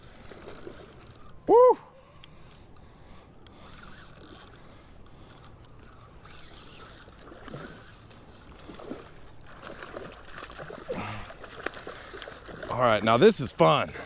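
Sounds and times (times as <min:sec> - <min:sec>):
fishing reel ticking: 0:00.0 - 0:01.5, 0:02.1 - 0:10.3.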